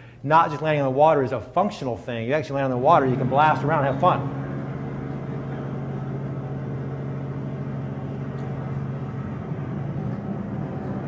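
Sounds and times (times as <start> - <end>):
engine droning steadily: 2.7 - 11.0.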